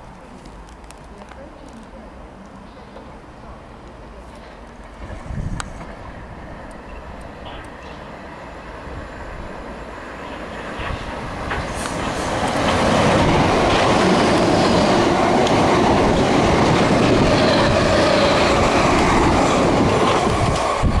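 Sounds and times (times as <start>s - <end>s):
train wheels rumbling on rails: 2.8s - 21.0s.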